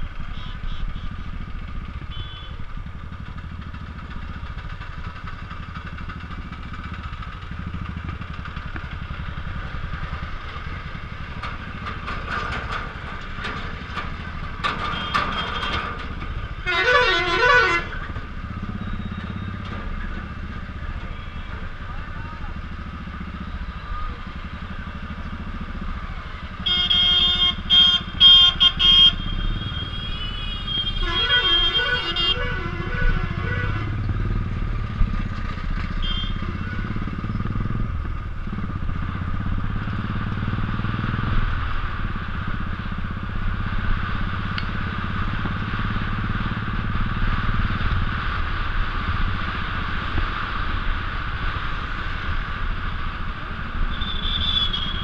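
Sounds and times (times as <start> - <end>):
motorcycle engine running: 0.0 - 55.0
loud vehicle horn honks: 2.1 - 2.6, 16.6 - 18.0, 26.6 - 34.0, 36.0 - 36.8, 53.9 - 55.0
lower horn pulsing: 16.5 - 19.5, 26.6 - 34.5, 35.8 - 37.3.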